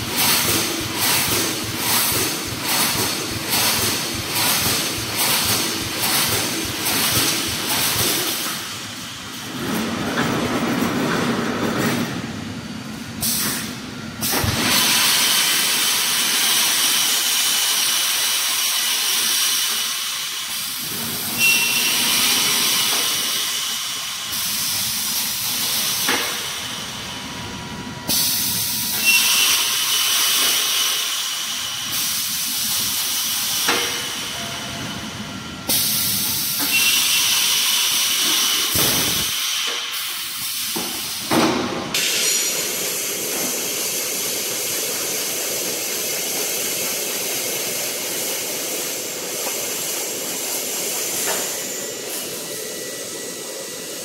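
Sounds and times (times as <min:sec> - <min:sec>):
welding production line running: 0:00.0 - 0:54.0
loud hiss: 0:35.7 - 0:41.4.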